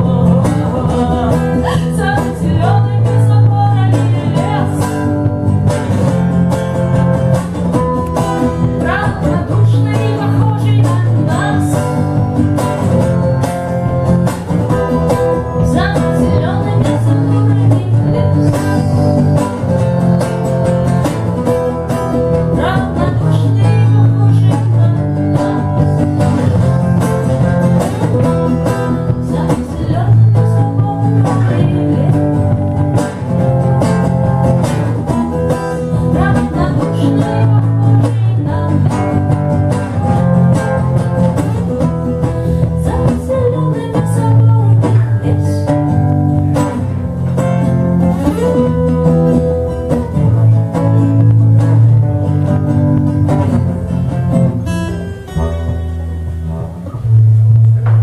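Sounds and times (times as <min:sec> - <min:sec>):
woman singing: 0:00.0 - 0:46.9, 0:48.0 - 0:53.0
acoustic guitar strumming: 0:00.0 - 0:58.0
electric bass guitar: 0:00.0 - 0:58.0.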